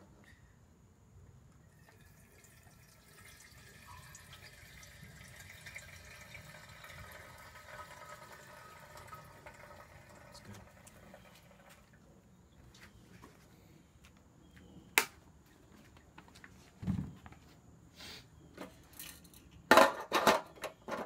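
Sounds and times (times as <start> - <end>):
gasoline pouring into fuel tank: 1.7 - 11.8.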